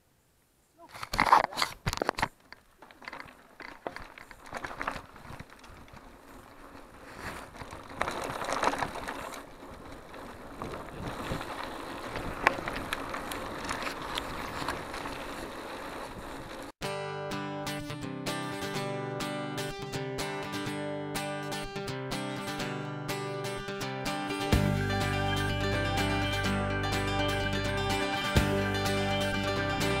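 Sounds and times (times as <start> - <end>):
bike tyres on gravel trail: 0.9 - 16.8
bike rattling: 1.0 - 16.8.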